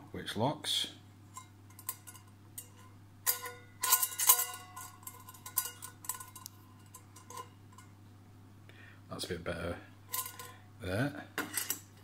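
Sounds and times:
metal pot clinking: 1.3 - 8.0, 10.1 - 10.6, 11.4 - 12.0.

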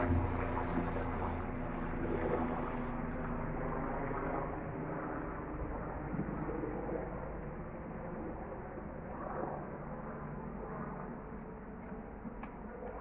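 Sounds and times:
helicopter engine drone: 0.0 - 13.0.

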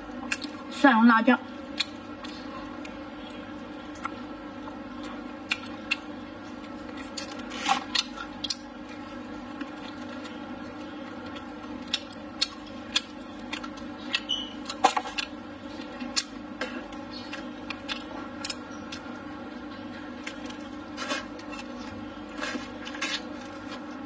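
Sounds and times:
steady background hum: 0.0 - 24.0
wet chewing and lip smacks: 1.6 - 19.2.

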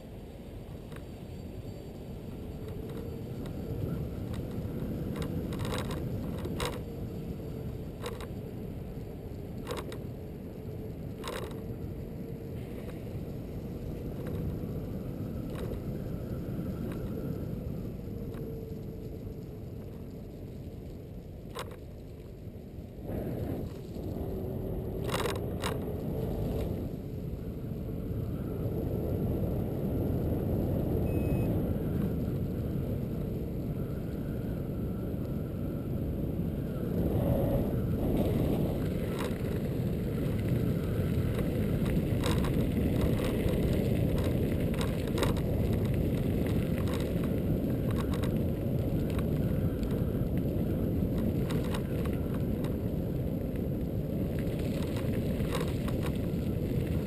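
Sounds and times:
scooter tyres rumbling on pavement: 1.8 - 31.0, 36.0 - 57.0
sharp clicks and rattles: 2.5 - 8.4, 9.0 - 10.1, 10.8 - 12.0, 15.5 - 15.9, 18.1 - 22.5, 25.0 - 26.8, 38.2 - 50.4, 54.4 - 57.0.

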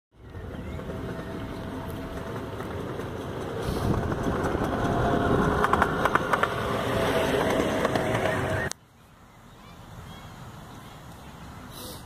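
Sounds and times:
miniature train rumbling past: 0.2 - 8.8.

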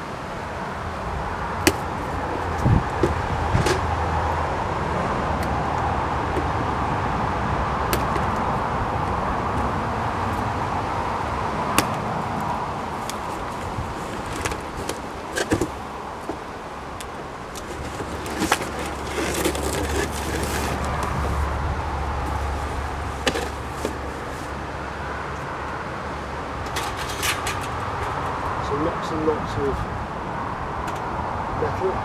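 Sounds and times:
cardboard box being opened: 12.9 - 16.5, 17.4 - 21.6.

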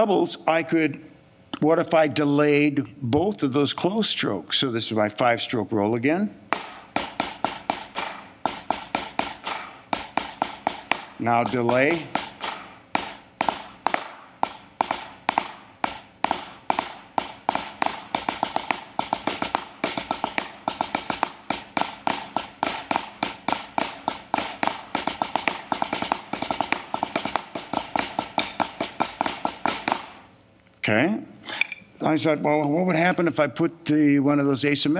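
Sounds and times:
snare drum rolls: 6.5 - 30.3.

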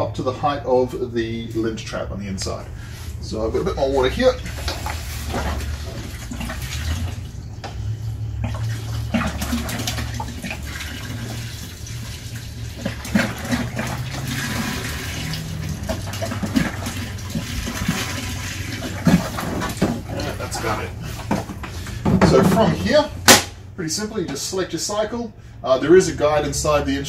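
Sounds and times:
water pouring into plastic tub: 4.0 - 23.0.

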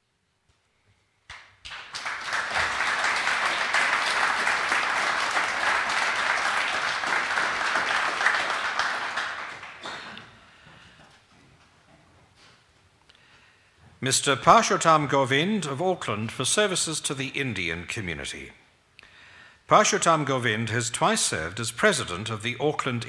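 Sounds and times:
audience applauding: 1.3 - 10.4.

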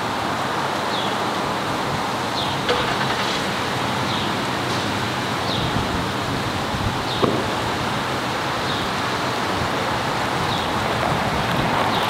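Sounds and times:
wind noise: 5.0 - 12.0.

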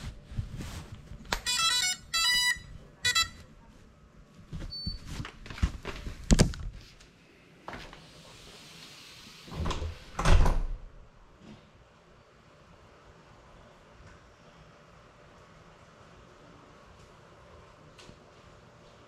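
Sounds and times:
electronic startup beeps: 1.5 - 3.4.

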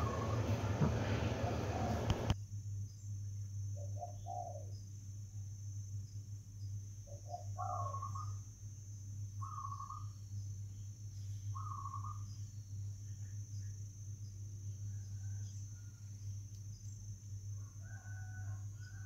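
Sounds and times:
bird calling: 0.0 - 2.4, 3.8 - 4.7, 7.1 - 8.4, 9.4 - 10.2, 11.5 - 12.3
low hum: 0.0 - 17.5
high insect buzz: 2.3 - 19.0.

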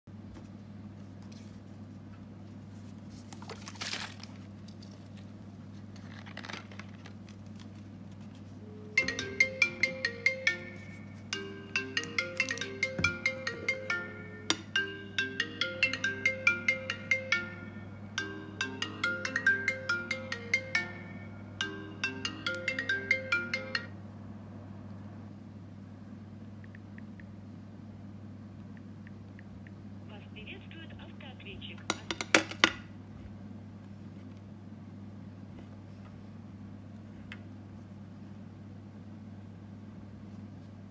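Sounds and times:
marimba-like phone ringtone: 8.9 - 23.9.

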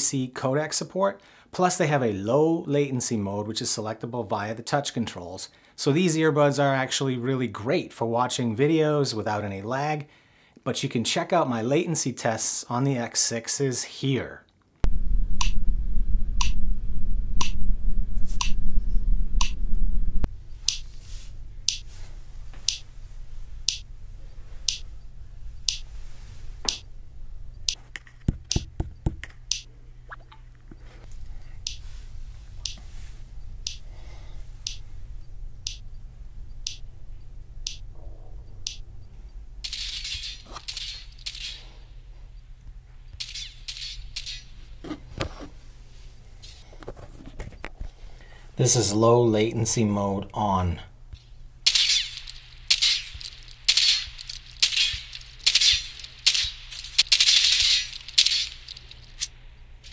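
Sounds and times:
loud low hum: 14.8 - 25.7, 26.5 - 27.8, 31.1 - 39.7
sharp test clicks: 15.4 - 15.6, 16.4 - 16.6, 17.4 - 17.6, 18.4 - 18.6, 19.4 - 19.6, 20.6 - 20.9, 21.7 - 21.9, 22.6 - 22.9, 23.6 - 23.9, 24.7 - 24.9, 25.6 - 25.9, 26.7 - 26.9, 27.6 - 29.7, 31.6 - 31.9, 32.6 - 32.8, 33.6 - 33.9, 34.6 - 34.9, 35.6 - 36.9, 37.6 - 37.9, 38.6 - 38.9, 51.1 - 59.9.

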